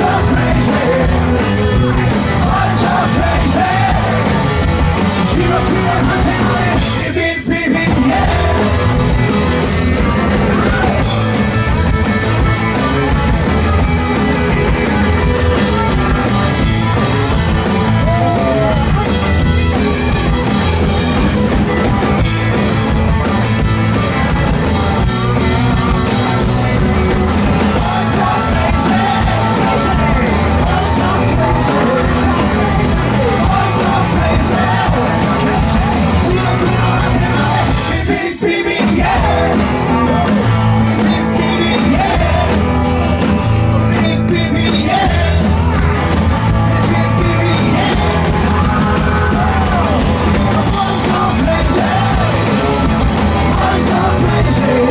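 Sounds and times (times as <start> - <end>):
drum kit: 0.0 - 54.9
electric guitar: 0.0 - 54.9
person singing: 5.2 - 9.0, 25.4 - 42.6, 46.7 - 54.9.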